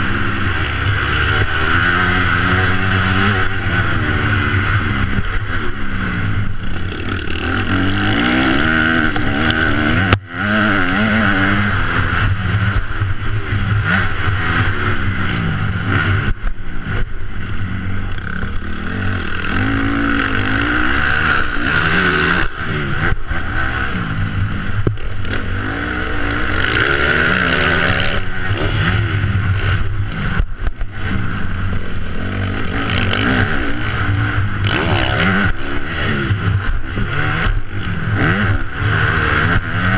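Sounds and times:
motocross engine revving: 0.0 - 39.9
steady rush of noise: 0.0 - 39.9.

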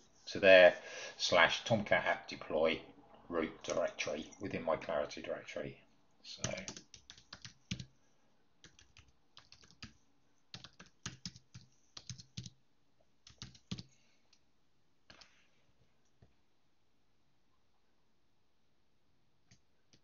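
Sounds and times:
computer keyboard typing: 6.4 - 8.0, 8.6 - 12.6, 13.2 - 13.9.

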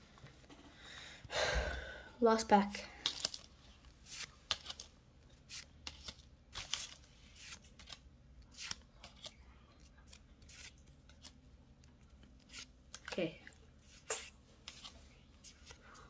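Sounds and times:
trading cards flipping: 3.0 - 11.4, 12.4 - 13.2, 13.8 - 15.8.

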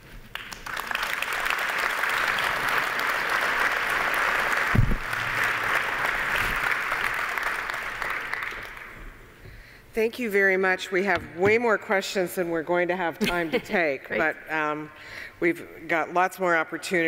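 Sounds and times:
audience applauding: 0.3 - 9.0
low thump: 4.7 - 5.1.

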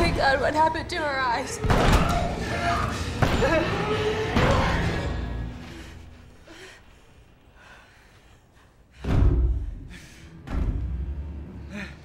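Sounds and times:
heavy thuds with low boom: 9.0 - 11.2.

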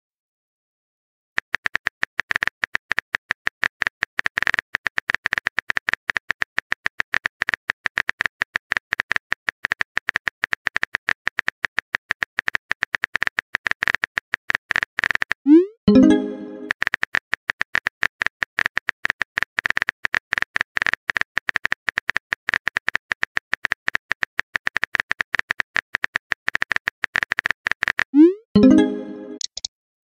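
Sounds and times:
keyboard typing clicks: 25.5 - 29.7.

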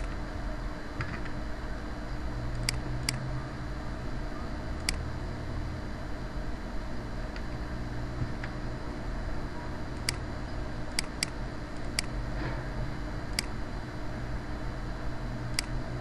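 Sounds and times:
low background hum: 0.0 - 16.0
computer mouse clicking: 2.5 - 3.2, 4.8 - 5.0, 10.0 - 10.2, 10.9 - 12.2.

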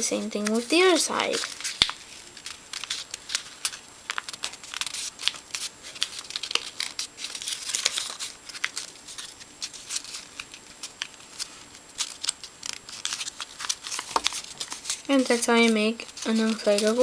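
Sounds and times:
paper crinkling as folded: 0.1 - 17.0.

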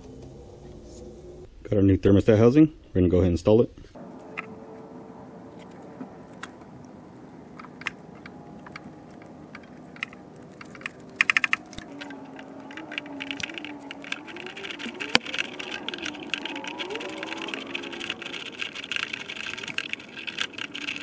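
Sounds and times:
hand ratchet clicking: 9.5 - 21.0.

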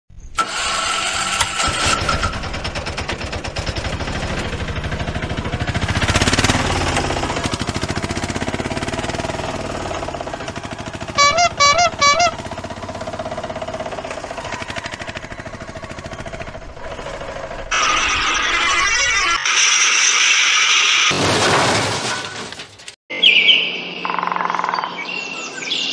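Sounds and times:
small engine chugging: 0.4 - 19.4
wavering horn toots: 11.0 - 13.1.

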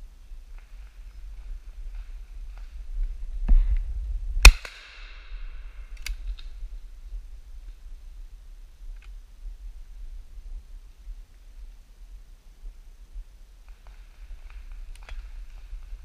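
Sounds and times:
shotgun shot with echo: 4.4 - 5.5
faint sharp crack: 4.5 - 6.6.

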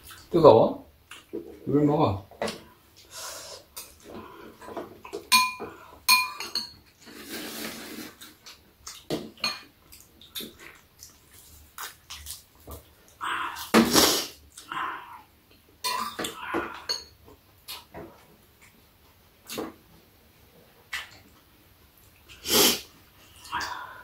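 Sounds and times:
spoons clinking against bowls: 5.3 - 6.8, 16.8 - 17.2.

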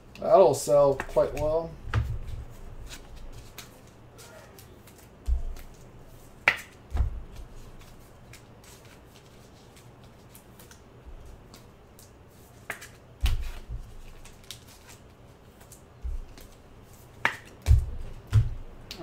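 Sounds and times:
dull knocks: 17.7 - 18.6.

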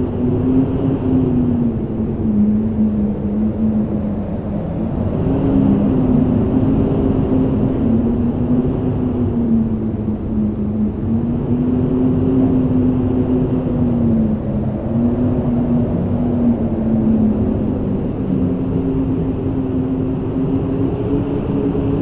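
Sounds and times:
howling wind: 0.0 - 22.0.

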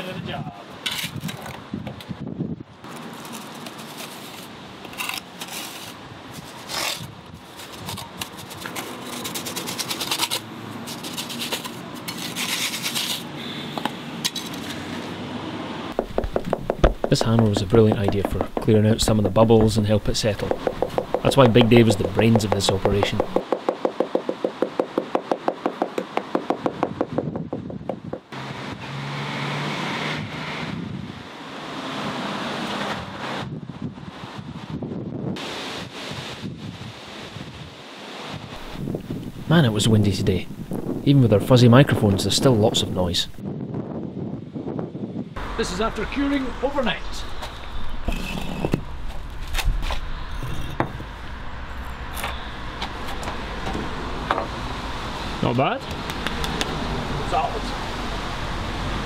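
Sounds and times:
wind buffeting microphone: 0.2 - 2.9, 26.8 - 28.4, 33.0 - 46.4
hammer tapping on formwork: 16.0 - 19.8, 20.4 - 28.3
wooden board knocks: 16.0 - 19.8, 20.4 - 28.3.

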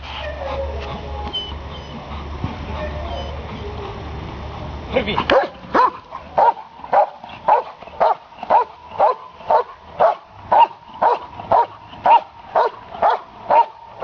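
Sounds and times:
dog barking steadily: 5.2 - 14.0.

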